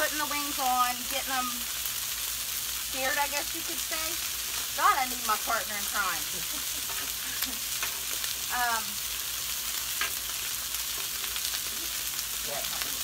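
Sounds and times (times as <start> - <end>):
chicken wings sizzling on griddle: 0.0 - 13.0
tongs clicking on metal griddle: 6.8 - 8.3, 9.9 - 10.3.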